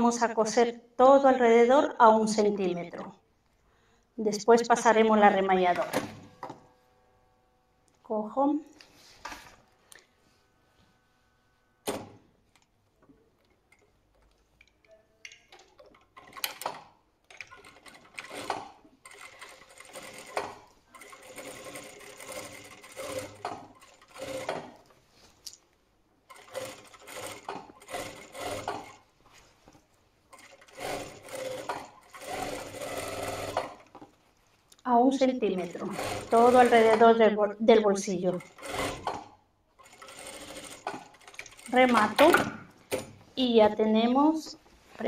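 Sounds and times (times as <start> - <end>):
sewing machine stitching: 15.5 - 24.8, 26.3 - 29.0, 30.3 - 33.9, 35.6 - 37.2, 38.2 - 43.1.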